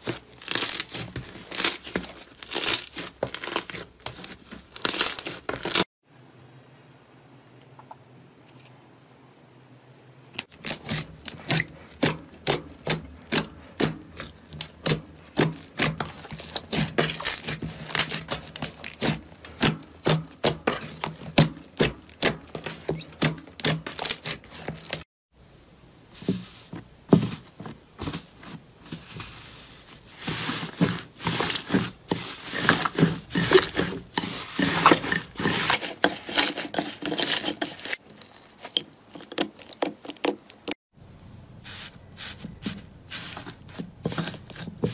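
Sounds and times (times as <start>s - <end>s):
slime crackling: 0.0s - 5.8s.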